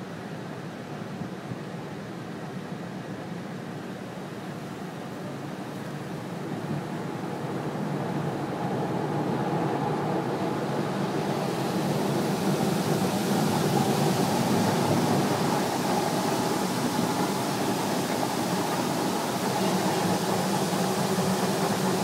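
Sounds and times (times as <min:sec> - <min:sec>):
water spraying on windows: 0:10.2 - 0:22.0.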